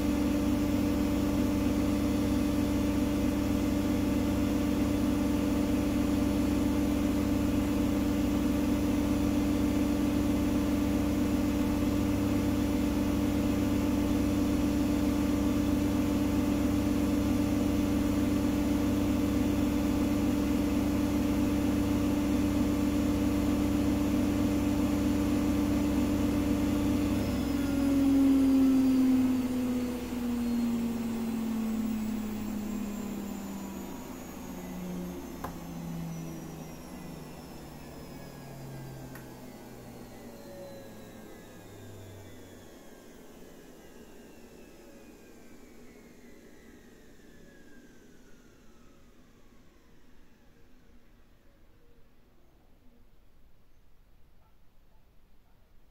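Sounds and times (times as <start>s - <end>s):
washing machine spinning: 0.0s - 43.9s.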